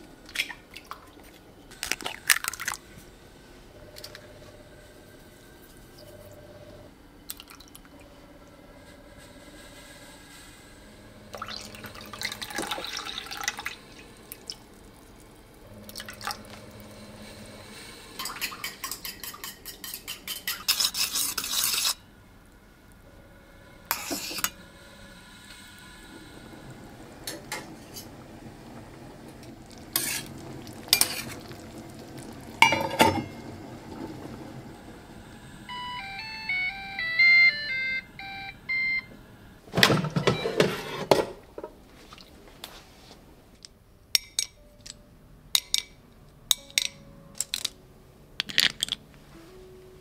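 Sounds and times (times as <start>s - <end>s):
crockery clinking: 18.2s - 21.8s, 32.6s - 33.5s, 44.2s - 45.0s, 45.6s - 47.8s
dishes clattering: 18.2s - 21.9s, 32.6s - 33.5s, 39.7s - 41.8s, 48.4s - 49.0s.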